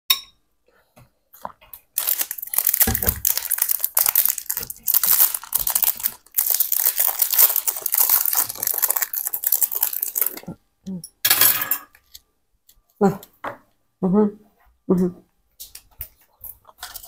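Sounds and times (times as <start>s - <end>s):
food wrapping crinkling: 1.8s - 10.6s, 16.1s - 17.0s.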